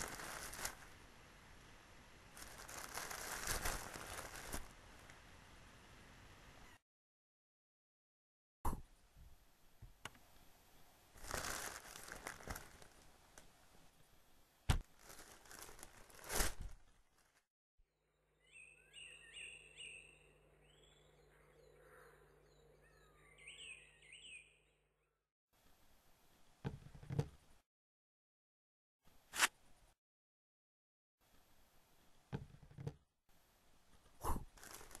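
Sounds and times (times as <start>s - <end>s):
rustling crinkling: 0.0s - 1.1s, 2.3s - 5.2s, 11.2s - 13.5s, 14.7s - 17.5s, 34.0s - 35.0s
birds chirping: 18.2s - 25.2s.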